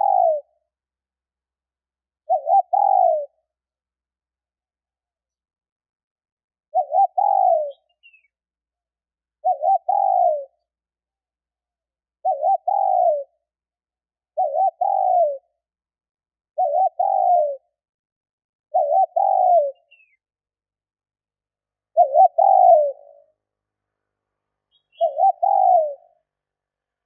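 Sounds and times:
dove cooing: 0.0s - 0.6s, 2.2s - 3.4s, 6.7s - 8.3s, 9.4s - 10.6s, 12.2s - 13.4s, 14.4s - 15.5s, 16.6s - 17.7s, 18.7s - 20.2s, 21.9s - 23.3s, 24.7s - 26.2s.

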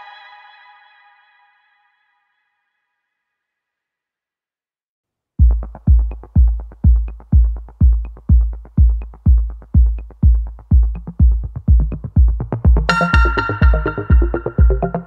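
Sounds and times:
kick drum beat: 5.4s - 15.0s.

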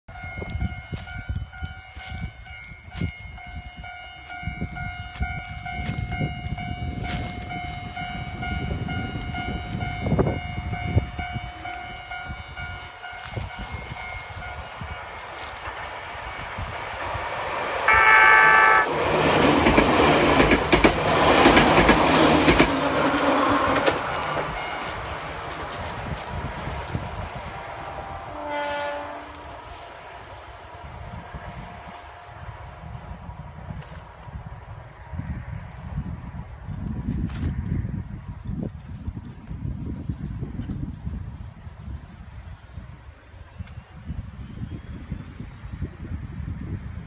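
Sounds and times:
train wheels rushing past: 1.9s - 34.2s
train horn blast: 17.9s - 19.0s, 22.9s - 25.1s, 27.5s - 30.0s.

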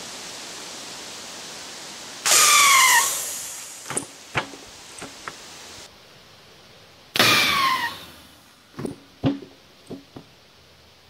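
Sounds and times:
gas rushing with falling whistle: 2.2s - 4.0s
short thuds: 8.8s - 10.3s.

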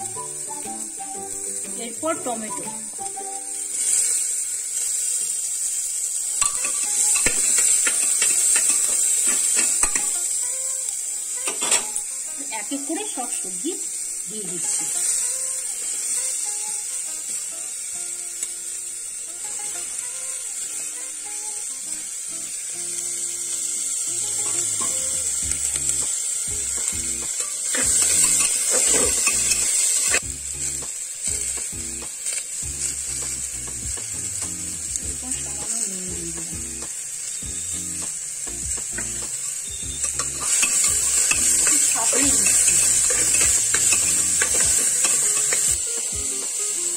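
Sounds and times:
vegetables sizzling in oil: 0.0s - 46.9s
metal spoon scraping pot: 6.4s - 10.1s, 27.4s - 30.0s, 40.0s - 45.8s.

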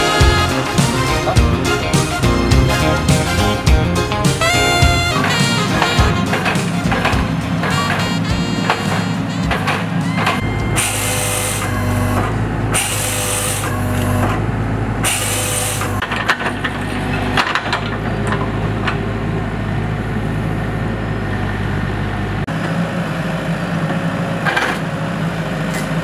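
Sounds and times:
excavator diesel engine running: 0.0s - 26.0s
loud hydraulic hissing bursts: 10.7s - 12.0s, 12.7s - 13.8s, 15.0s - 15.9s.

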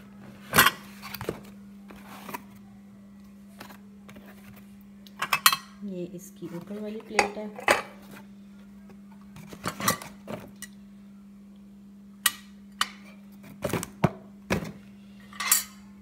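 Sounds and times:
ceramic plates clinking: 5.2s - 5.8s.

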